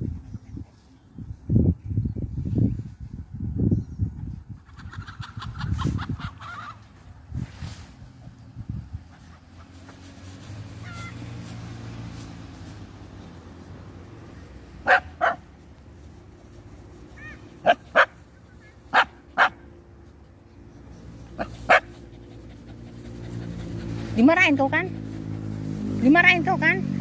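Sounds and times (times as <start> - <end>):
dogs barking: 14.8 - 15.5, 17.6 - 18.3, 18.9 - 19.7, 21.3 - 24.0.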